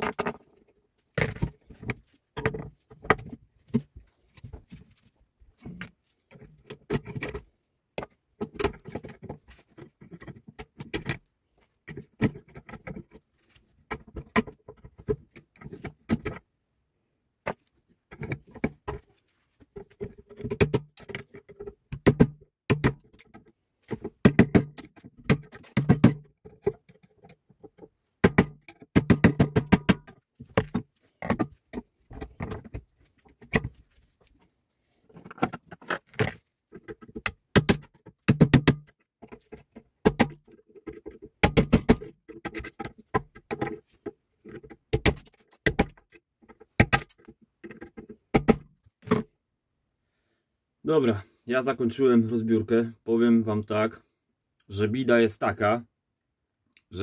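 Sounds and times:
metal clanking and tapping: 36.8 - 43.8.

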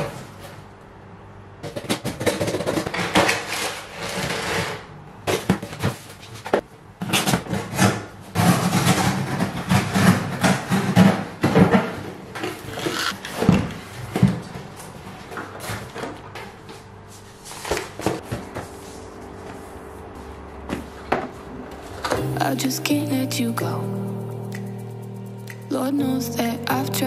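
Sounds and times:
cardboard packaging rustling and scraping: 2.0 - 22.2.

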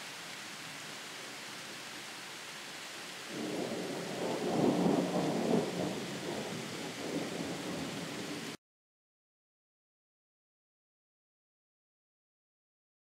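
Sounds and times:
steady hiss: 0.0 - 8.6
distant thunder rumble: 3.3 - 8.6.

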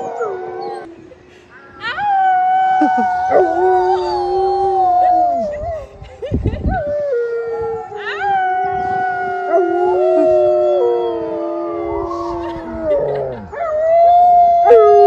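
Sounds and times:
dog howling: 7.1 - 15.0.

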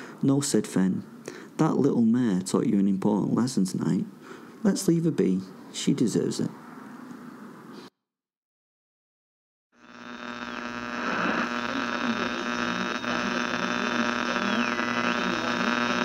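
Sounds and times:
steady electronic hum: 9.8 - 16.0.

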